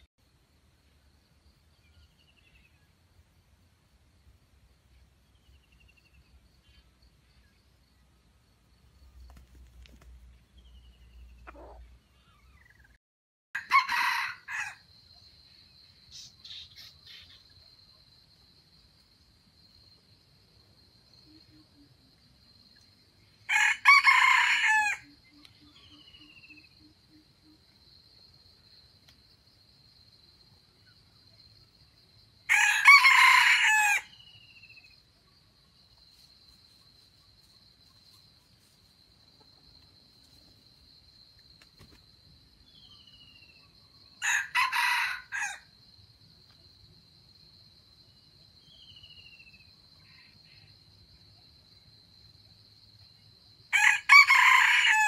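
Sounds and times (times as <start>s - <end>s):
faint bird chirps: 9.0s - 13.0s, 15.2s - 18.1s, 25.2s - 27.8s, 42.6s - 44.0s
rooster crowing: 13.6s - 14.8s, 23.5s - 25.2s, 32.5s - 34.2s, 44.2s - 45.7s, 53.7s - 55.0s.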